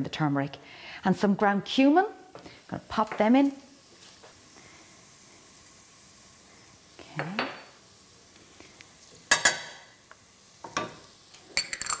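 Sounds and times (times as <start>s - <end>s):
ceramic dishes clinking on saucepan: 9.3s - 9.8s, 11.6s - 12.0s.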